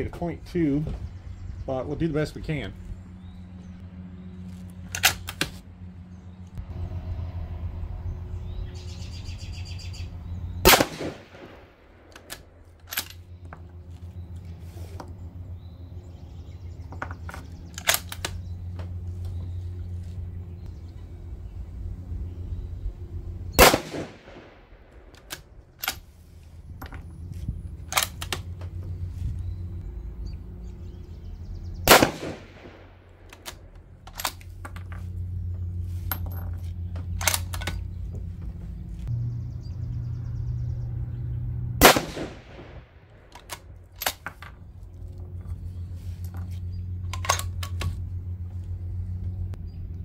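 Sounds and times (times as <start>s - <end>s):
low hum: 0.0s - 50.0s
rifle shots: 10.6s - 13.0s, 23.6s - 25.2s, 31.8s - 33.4s, 41.8s - 44.2s
sharp cracks and clacks: 10.8s - 13.2s.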